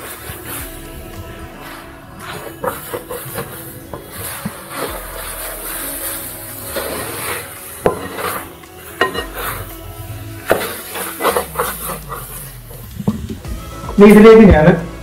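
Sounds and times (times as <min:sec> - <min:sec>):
metal spoon stirring food in pot: 0:00.0 - 0:13.9
metal clanking on metal: 0:07.2 - 0:09.8.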